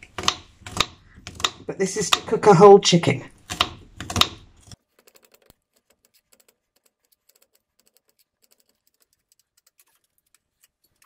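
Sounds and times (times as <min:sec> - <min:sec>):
knife chopping on wooden board: 0:00.0 - 0:02.3, 0:03.4 - 0:04.8.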